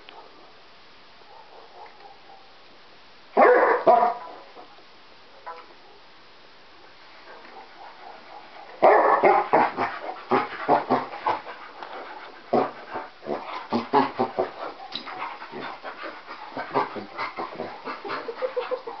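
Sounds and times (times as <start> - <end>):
dogs barking: 1.3 - 2.5, 3.4 - 4.4, 7.3 - 19.0
dogs panting: 7.3 - 19.0.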